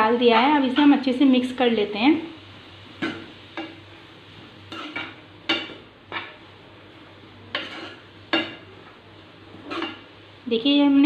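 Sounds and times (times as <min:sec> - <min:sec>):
spatula scraping frying pan: 0:04.6 - 0:06.4, 0:07.5 - 0:08.7, 0:09.6 - 0:10.1.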